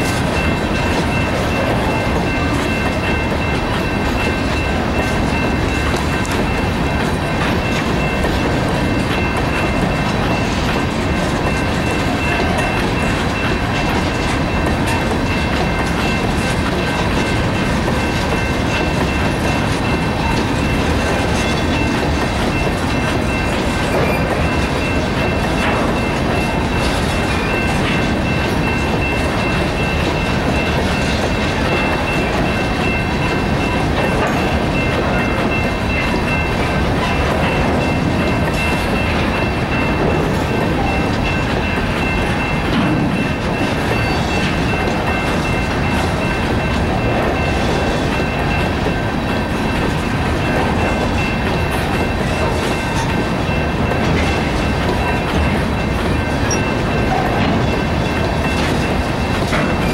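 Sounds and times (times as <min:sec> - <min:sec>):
freight train wheels clattering: 0:00.0 - 0:59.9.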